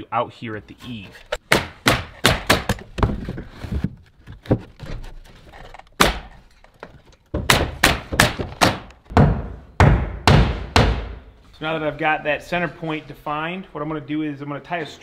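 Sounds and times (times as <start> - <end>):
nail gun firing into wood: 6.0 - 6.3, 7.5 - 11.1.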